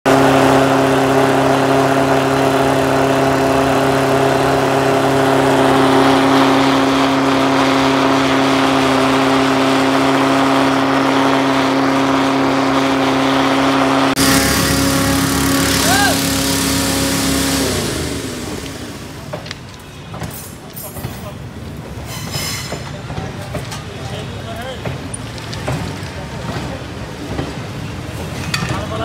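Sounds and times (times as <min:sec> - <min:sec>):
small engine droning: 0:00.1 - 0:20.2
burners rushing: 0:14.2 - 0:19.3.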